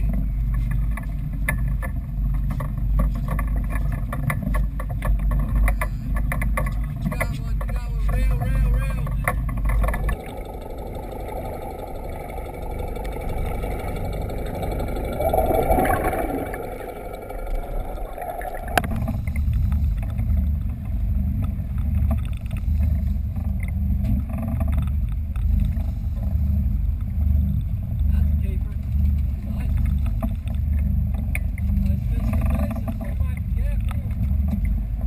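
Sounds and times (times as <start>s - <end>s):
boat engine rumble: 0.0s - 35.0s
muffled underwater water rush: 0.0s - 35.0s
wind on microphone: 0.0s - 35.0s.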